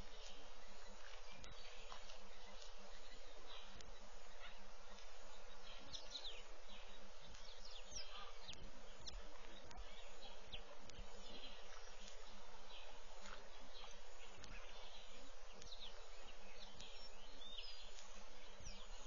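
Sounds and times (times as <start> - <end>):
bird chirps: 0.0 - 19.0.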